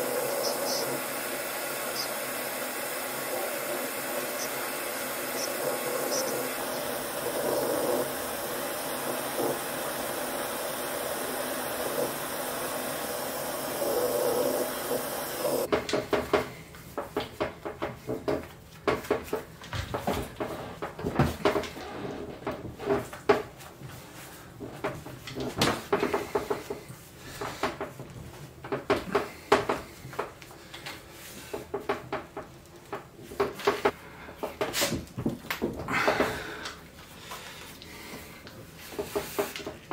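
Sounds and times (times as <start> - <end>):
gas torch flame: 0.0 - 15.7.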